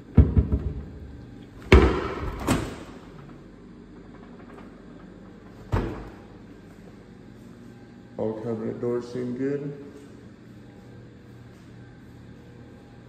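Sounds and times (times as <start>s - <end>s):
dishwasher opening clunk: 5.7s - 6.2s.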